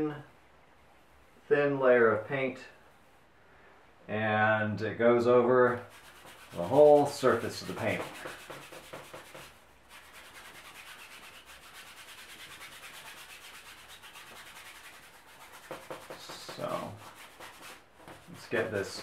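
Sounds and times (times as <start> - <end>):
paintbrush rubbing on canvas: 5.7 - 19.0.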